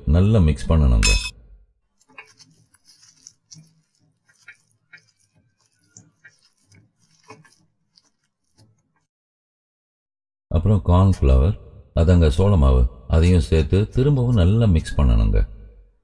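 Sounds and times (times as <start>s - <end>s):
wet squelching of kneaded meat: 1.8s - 9.1s.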